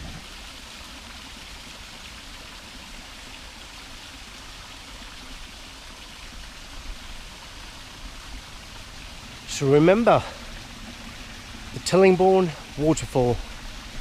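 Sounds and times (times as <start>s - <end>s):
waterfall rushing: 0.0s - 0.8s, 6.4s - 14.0s.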